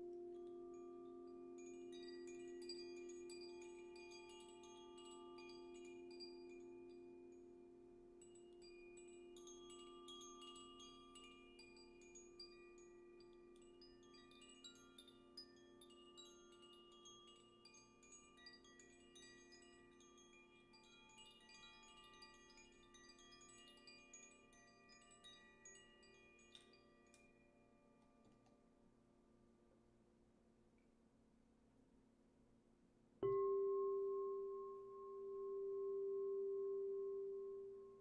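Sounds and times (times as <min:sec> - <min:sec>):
wind chime tinkling: 0:00.0 - 0:28.7
singing bowl ringing: 0:33.2 - 0:38.0.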